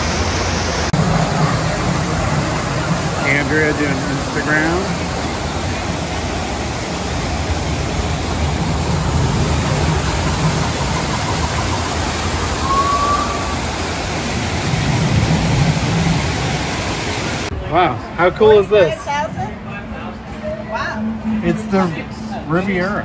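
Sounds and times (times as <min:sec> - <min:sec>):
waterfall rushing into pools: 0:00.0 - 0:17.5
short high tone: 0:12.5 - 0:14.4.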